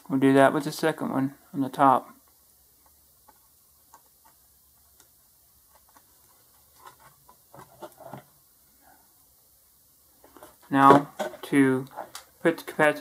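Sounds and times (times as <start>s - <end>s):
small clicks and taps: 2.2s - 7.4s.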